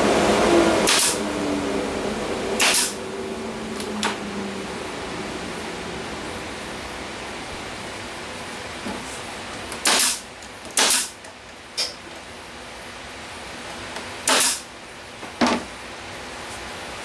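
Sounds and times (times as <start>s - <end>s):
steady hum: 0.0s - 17.0s
pneumatic nail gun firing: 0.8s - 1.2s, 2.6s - 3.0s, 9.7s - 11.2s, 14.2s - 14.7s.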